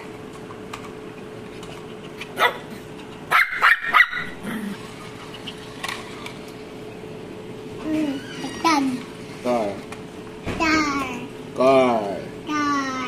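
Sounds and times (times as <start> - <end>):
puppy barking: 2.2 - 4.4.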